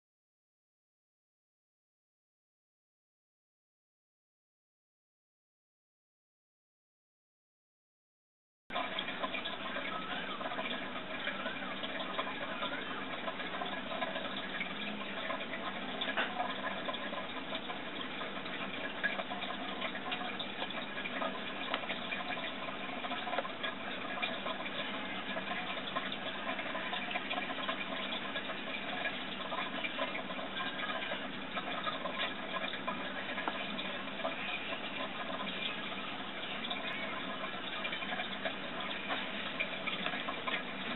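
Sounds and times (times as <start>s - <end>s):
rushing water: 8.7s - 40.9s.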